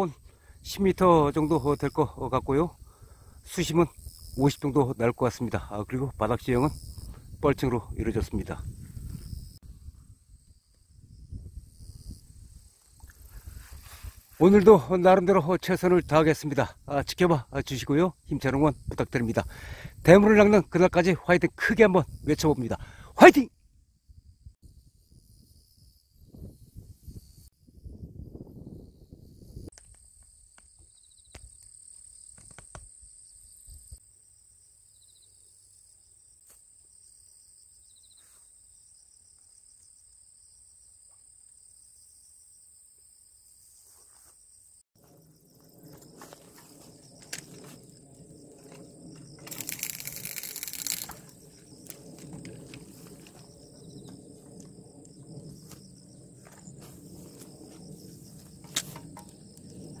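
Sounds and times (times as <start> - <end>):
insects chirring: 0.0 - 60.0.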